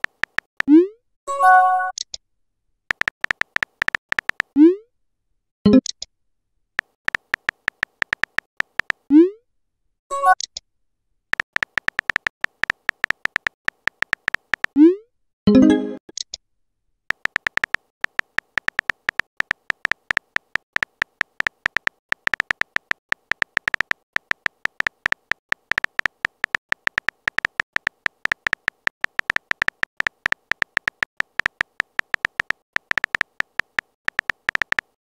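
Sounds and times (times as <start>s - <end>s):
synthetic keyboard tap clicks: 0.0s - 0.8s, 2.9s - 4.6s, 6.8s - 9.1s, 11.3s - 14.8s, 17.1s - 35.0s.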